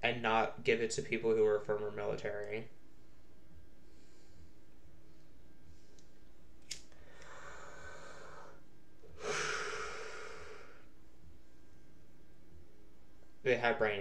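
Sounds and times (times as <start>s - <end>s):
man breathing: 3.7s - 6.1s, 6.9s - 10.9s.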